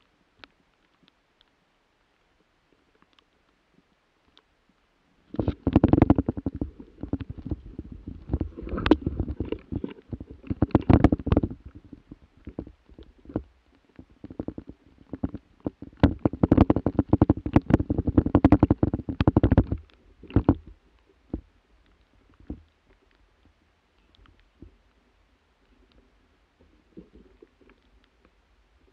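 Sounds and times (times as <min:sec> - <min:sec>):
branches rustling against camera: 0:05.3 - 0:20.8.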